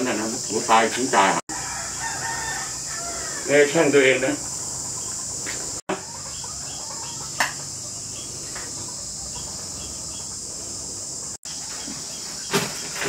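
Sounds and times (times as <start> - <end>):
insects chorus: 0.0 - 13.0.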